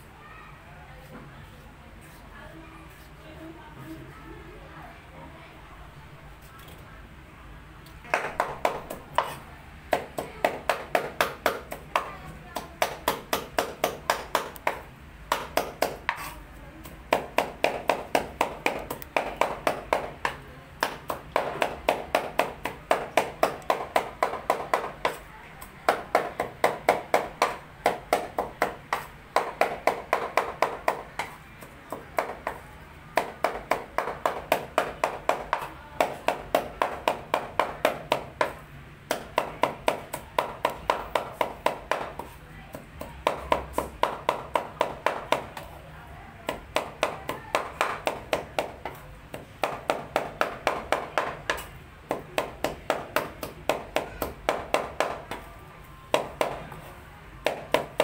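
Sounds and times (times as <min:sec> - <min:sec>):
knife chopping on cutting board: 0:08.1 - 0:25.3, 0:25.9 - 0:32.6.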